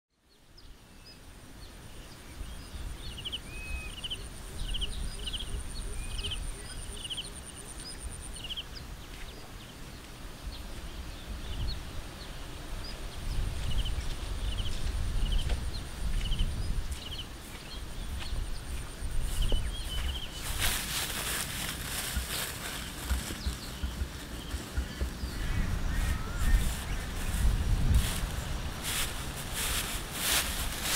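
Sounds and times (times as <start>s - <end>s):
wind on microphone: 10.3s - 30.9s
footsteps through tall grass: 13.5s - 30.9s.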